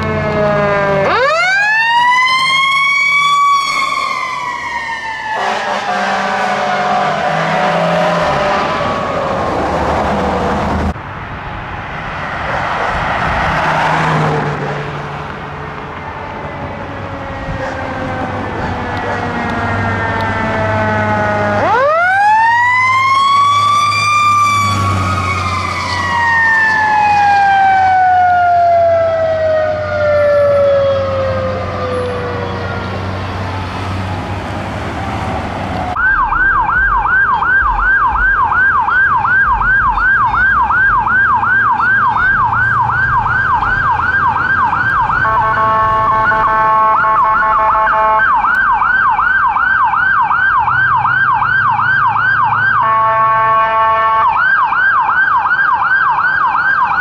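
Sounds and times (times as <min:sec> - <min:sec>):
ambulance electronic siren yelping: 0:00.0 - 0:09.6, 0:17.0 - 0:33.0, 0:35.9 - 0:57.0
diesel engine hum: 0:00.0 - 0:57.0
fire truck siren: 0:00.0 - 0:57.0
horn blast: 0:05.3 - 0:09.0, 0:45.1 - 0:48.4, 0:52.8 - 0:54.3.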